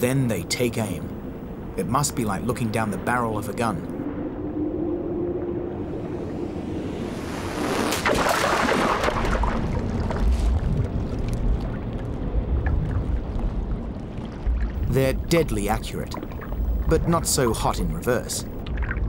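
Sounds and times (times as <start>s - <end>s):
rushing water: 5.7s - 19.0s.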